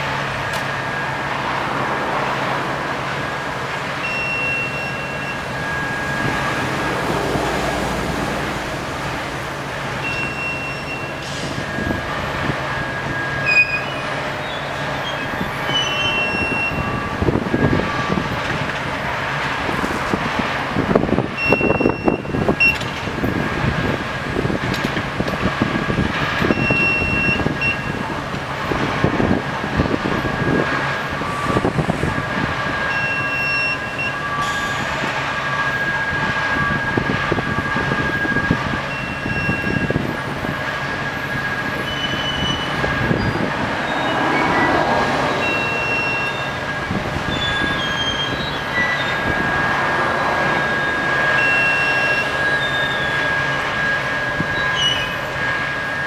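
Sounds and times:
crane running: 0.0 - 56.0
high metallic squeals: 4.0 - 18.3, 21.4 - 22.9, 26.3 - 28.1, 31.2 - 56.0.

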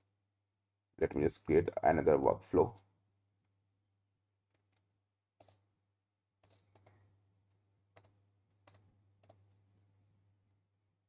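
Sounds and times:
computer mouse clicks: 4.5 - 5.7, 6.4 - 7.1, 7.9 - 9.6.

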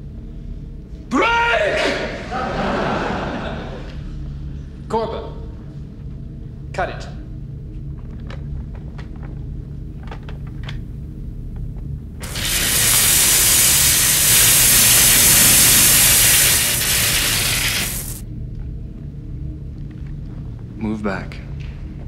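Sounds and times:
cutting tool spraying hiss: 12.2 - 18.2.

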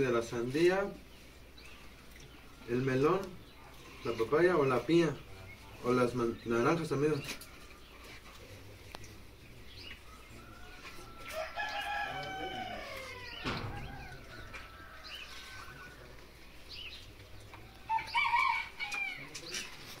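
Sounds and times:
rooster crowing: 10.0 - 16.0, 17.7 - 19.4
thump: 13.4 - 14.3.

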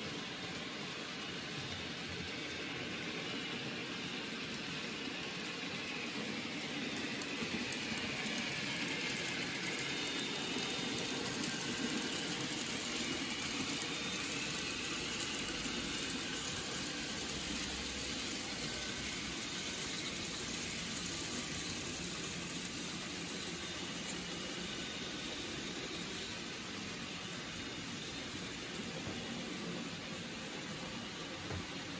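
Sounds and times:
model train whirring on track: 0.0 - 31.9.

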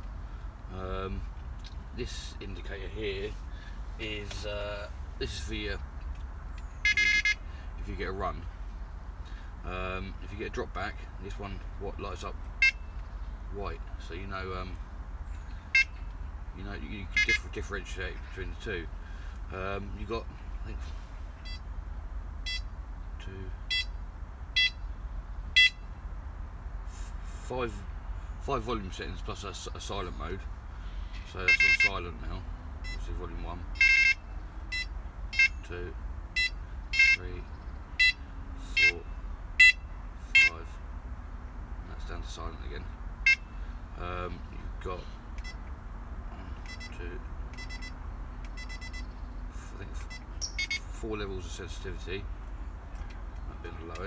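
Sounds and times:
bite alarm beeping: 6.8 - 7.4, 12.6 - 13.0, 15.7 - 16.0, 17.1 - 17.6, 21.4 - 21.7, 22.4 - 22.7, 23.7 - 24.0, 24.6 - 24.8, 25.6 - 25.8, 31.4 - 32.0, 32.8 - 33.1, 33.7 - 35.7, 36.3 - 37.3, 38.0 - 40.6, 43.2 - 43.6, 45.4 - 45.6, 46.6 - 49.2, 50.0 - 51.0
high-pitched electronic beeps: 6.8 - 7.4, 33.8 - 35.6, 46.7 - 47.0, 47.6 - 49.1, 50.1 - 50.9.

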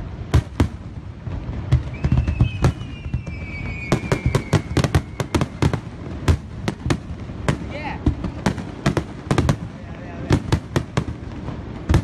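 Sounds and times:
firework shells bursting: 0.0 - 12.0
high whistle falling in pitch: 1.8 - 5.6.

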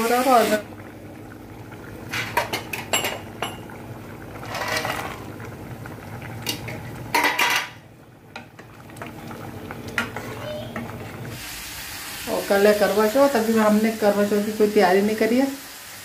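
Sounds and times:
spoon clinking and scraping pot: 2.1 - 3.7.

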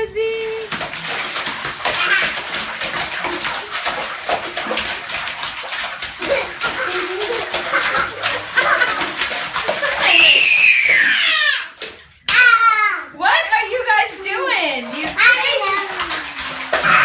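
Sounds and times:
hands splashing bathwater: 0.0 - 17.0
toddlers squealing: 10.0 - 11.8.

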